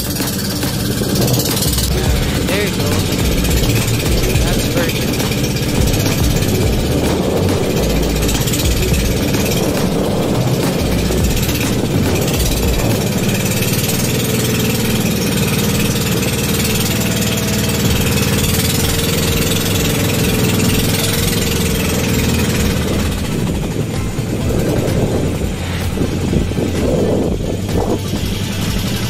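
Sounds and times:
boat engine running: 0.0 - 29.0.

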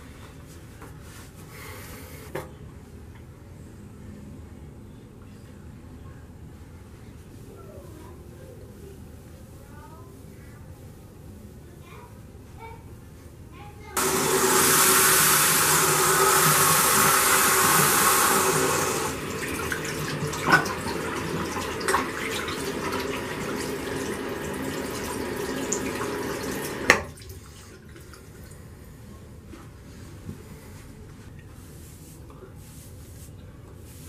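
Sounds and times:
tap water running: 14.0 - 28.6.

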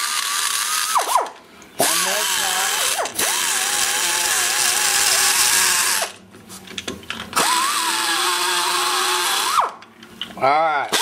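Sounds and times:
die grinder whining: 0.0 - 6.2, 7.4 - 9.9.

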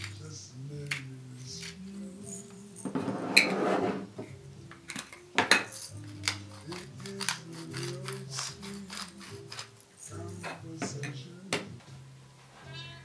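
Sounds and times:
pepper grinder rasping: 0.0 - 1.9, 5.0 - 10.6
background music: 0.0 - 13.0
glass pepper grinder clinking: 0.9 - 2.9, 4.9 - 11.2.

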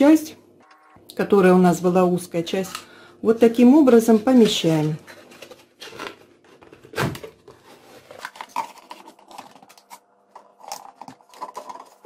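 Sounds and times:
plastic bottle clicking and crackling: 8.1 - 12.0.

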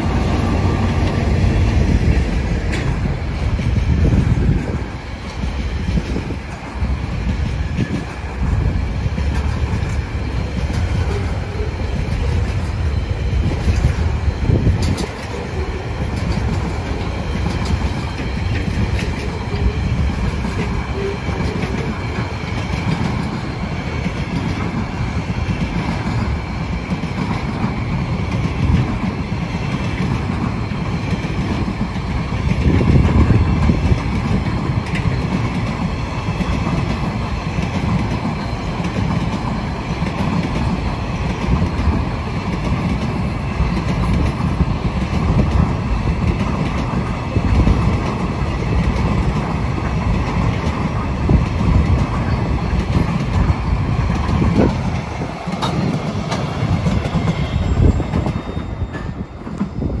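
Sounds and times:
train wheels rumbling on rails: 0.0 - 60.0
wheels clattering over rail joints: 14.6 - 59.8.

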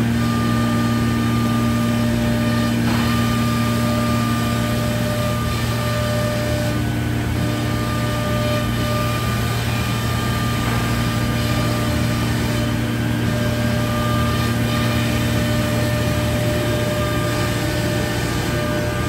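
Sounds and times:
cnc router machine drone: 0.0 - 19.0.

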